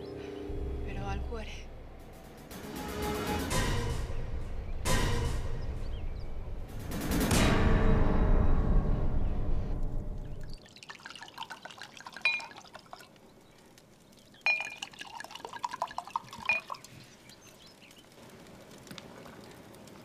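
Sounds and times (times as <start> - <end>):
music: 0.0 - 10.5
wine pouring into glasses: 10.6 - 13.2, 14.4 - 17.0
glasses clinking: 11.3 - 13.0, 14.5 - 16.8
small ticks: 16.8 - 20.0.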